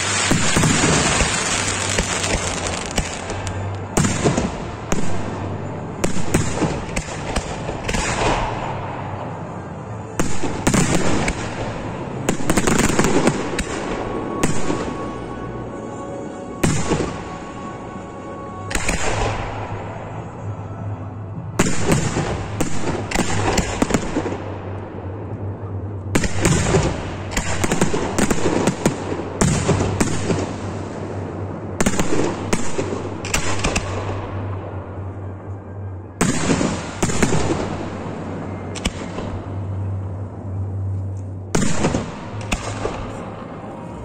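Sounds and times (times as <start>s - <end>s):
fireworks bursting in rapid bangs: 0.0s - 5.4s, 6.0s - 8.8s, 10.2s - 15.0s, 21.6s - 24.4s, 26.2s - 30.5s, 31.8s - 34.0s, 36.2s - 37.8s.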